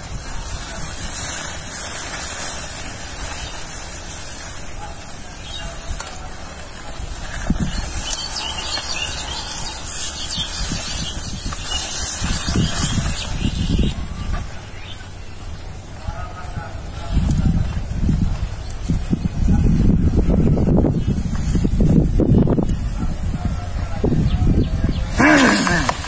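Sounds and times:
leaves rustling: 0:00.0 - 0:16.0, 0:25.1 - 0:26.0
wind rumble on microphone: 0:00.0 - 0:26.0.

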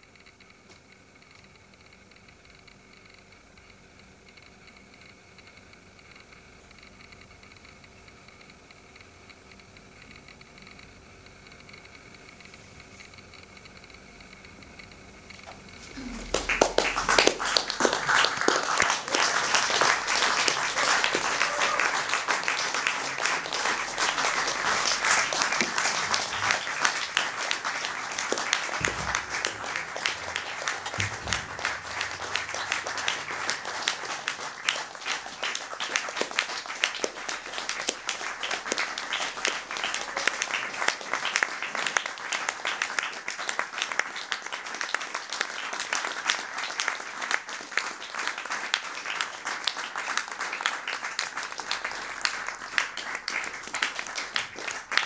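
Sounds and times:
audience applauding: 0:15.8 - 0:55.0.

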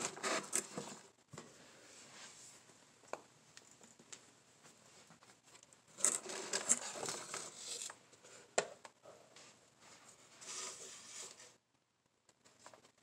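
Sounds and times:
paper and cardboard rustling: 0:05.9 - 0:08.0.

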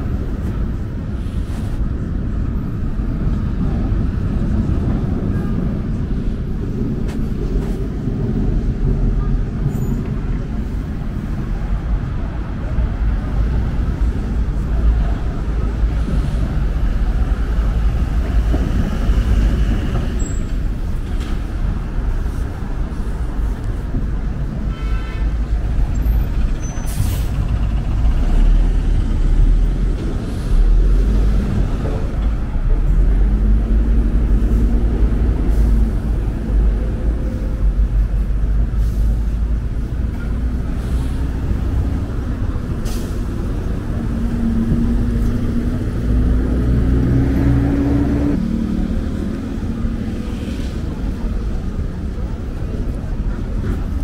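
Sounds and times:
bus passing: 0:00.0 - 0:54.0
city traffic rumble: 0:00.0 - 0:54.0
air brakes hissing: 0:26.0 - 0:27.6, 0:42.7 - 0:43.4.

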